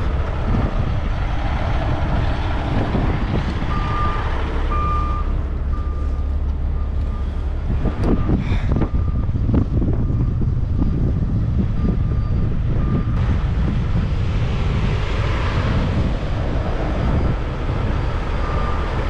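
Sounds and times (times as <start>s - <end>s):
diesel truck engine rumbling: 0.0s - 19.0s
reversing alarm beeping: 3.7s - 13.2s, 16.9s - 19.0s.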